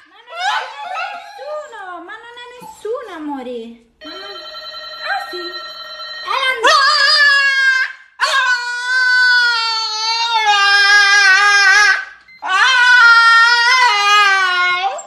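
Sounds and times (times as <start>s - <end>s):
dog howling: 0.3s - 1.8s, 6.9s - 15.0s.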